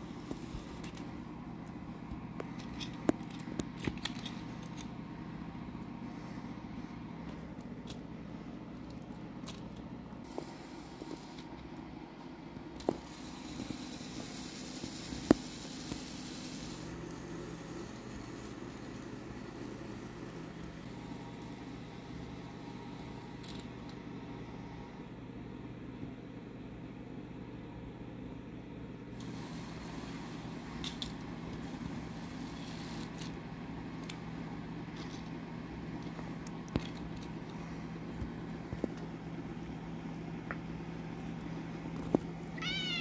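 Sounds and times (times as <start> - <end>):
faint steady hum: 0.0 - 43.0
toy locomotive clicking on track: 12.8 - 17.3.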